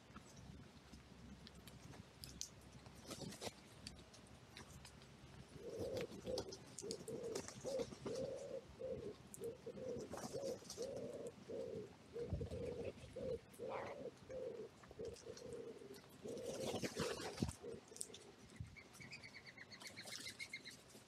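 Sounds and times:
pigeon cooing: 0:05.5 - 0:20.7.

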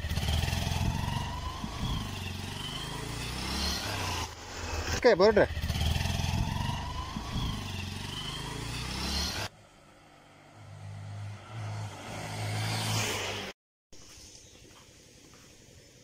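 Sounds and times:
motorcycle engines running: 0:00.0 - 0:10.0
motorcycle approaching: 0:00.0 - 0:13.6.

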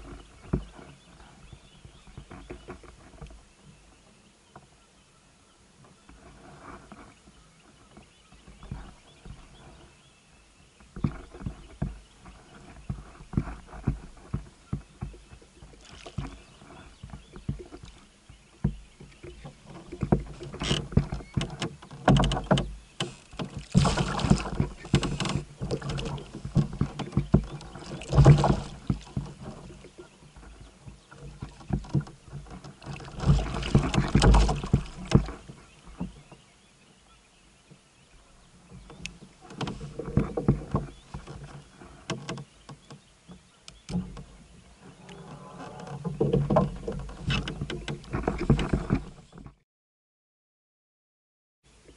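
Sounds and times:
fish splashing in water: 0:22.3 - 0:29.7, 0:32.8 - 0:35.5
knocks on kayak hull: 0:33.0 - 0:35.4.

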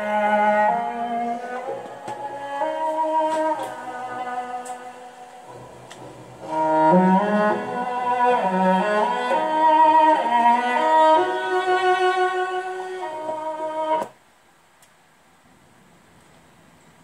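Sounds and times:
classical string music from radio: 0:00.0 - 0:14.2.

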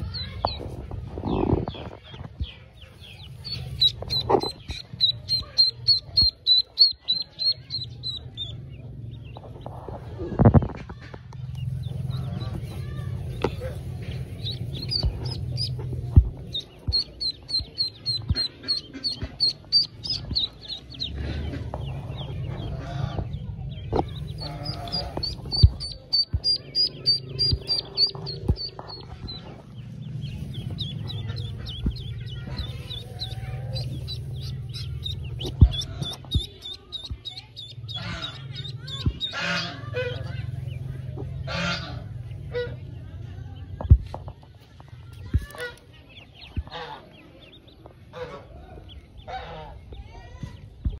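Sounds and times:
straw rustling: 0:00.0 - 0:08.0, 0:11.6 - 0:23.0, 0:23.8 - 0:41.0
duckling peeping: 0:00.0 - 0:43.7, 0:44.7 - 0:50.9.

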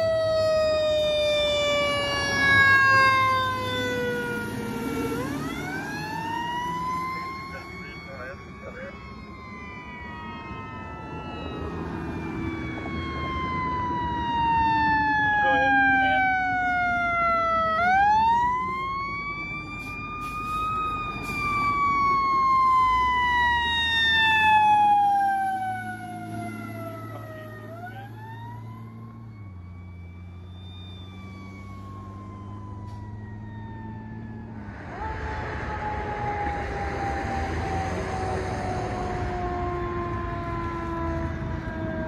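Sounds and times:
siren wailing: 0:00.0 - 0:42.0.

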